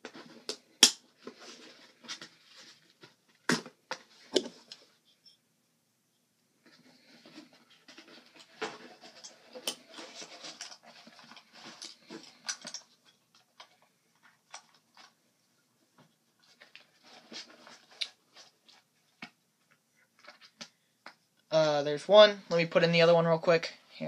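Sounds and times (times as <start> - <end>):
rustles scrapes and clicks: 0.0 - 3.3, 6.6 - 15.2, 16.4 - 18.9.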